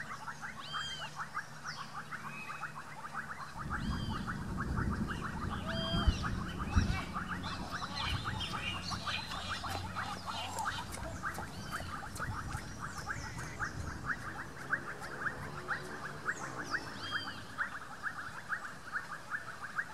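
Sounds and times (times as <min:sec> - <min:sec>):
birds chirping: 0:00.0 - 0:19.9
fast pulsing animal call: 0:00.0 - 0:19.9.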